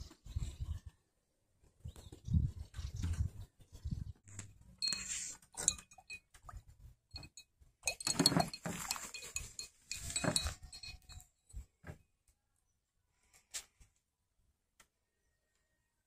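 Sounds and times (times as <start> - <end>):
paintbrushes clinking against glass jar: 4.8 - 11.6.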